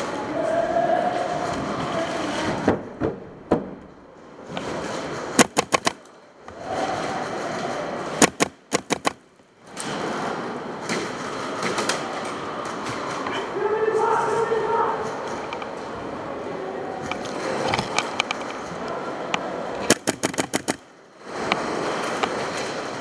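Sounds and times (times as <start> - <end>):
steady background din: 0.0 - 23.0
airsoft gun bursts: 5.4 - 6.0, 8.2 - 9.2, 19.9 - 20.8.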